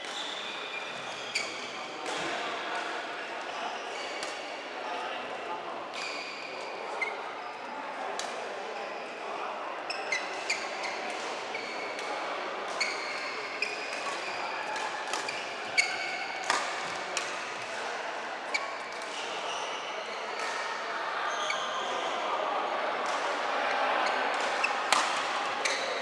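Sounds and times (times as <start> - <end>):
shoes squeaking on court: 0.0 - 2.2, 6.0 - 7.2, 9.9 - 12.0, 12.8 - 17.6, 18.5 - 20.2, 21.3 - 21.9, 24.0 - 26.0
racket hitting shuttlecock: 13.9 - 17.6, 24.0 - 25.9.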